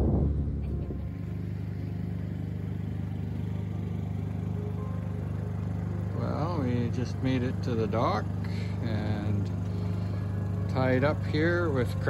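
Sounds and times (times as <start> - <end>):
wind on microphone: 0.0 - 0.5
boat engine idling: 0.0 - 12.0
boat under way rumble: 0.0 - 12.0.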